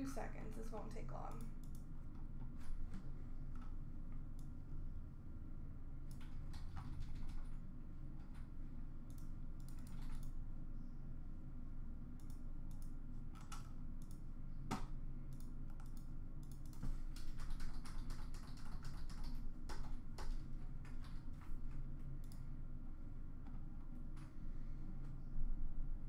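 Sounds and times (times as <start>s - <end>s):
steady low hum: 0.0s - 26.0s
keyboard typing and clicking: 1.3s - 2.2s, 6.1s - 7.6s, 8.2s - 10.4s, 12.2s - 22.4s.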